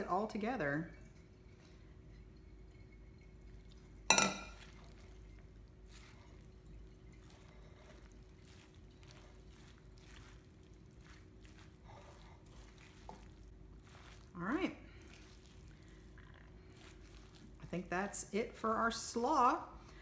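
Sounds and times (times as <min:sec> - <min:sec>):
metal mixing bowl clanking: 0:01.0 - 0:15.5.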